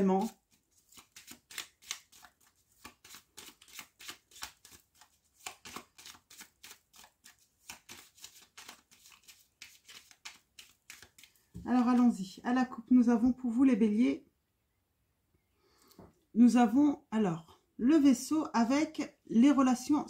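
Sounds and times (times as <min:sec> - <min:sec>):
cards being shuffled by hand: 0:00.0 - 0:12.2.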